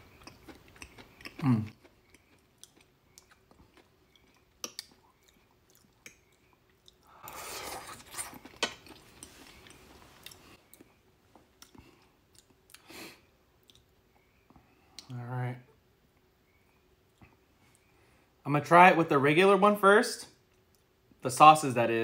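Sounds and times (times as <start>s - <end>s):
chewing with wet mouth clicks: 0.1s - 11.0s, 11.6s - 12.9s, 13.6s - 15.1s.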